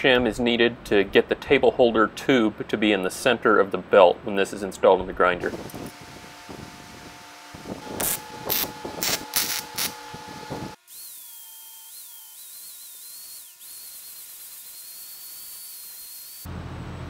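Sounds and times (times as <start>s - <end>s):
angle grinder whining on steel: 5.5s - 16.5s
short noisy strokes: 5.5s - 16.5s.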